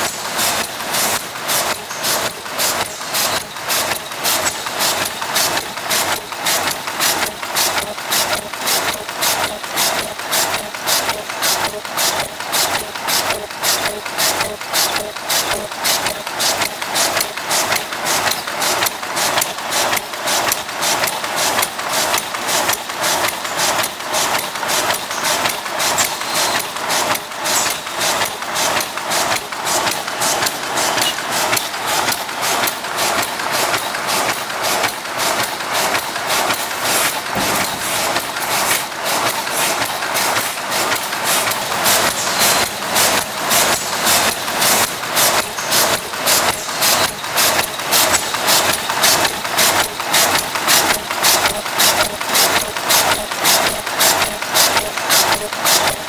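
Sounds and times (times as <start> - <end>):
mechanical clacks: 0.0 - 56.0
steady machine hum: 26.8 - 56.0.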